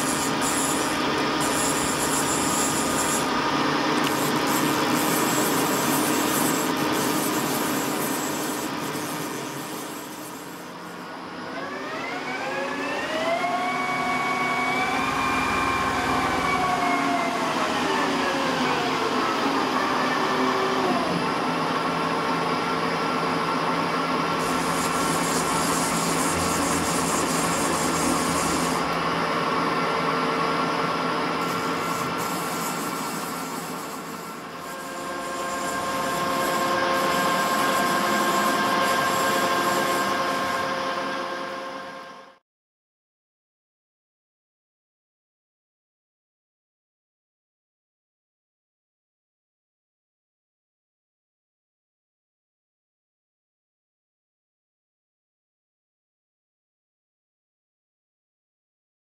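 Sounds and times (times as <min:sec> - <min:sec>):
lathe spindle drive whining: 0:00.0 - 0:42.2.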